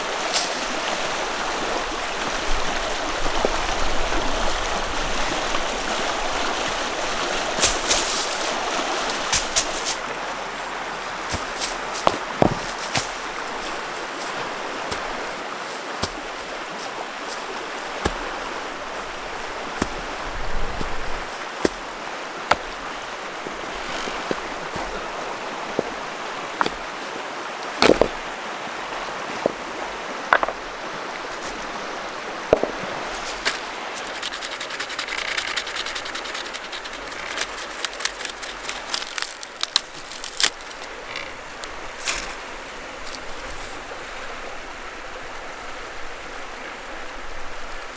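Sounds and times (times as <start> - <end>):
river rapids rushing: 0.0 - 47.9
knocks on stony bank: 11.3 - 13.2, 22.5 - 22.8, 27.8 - 28.2, 32.5 - 33.6
metal rod scraping bark: 34.0 - 39.1.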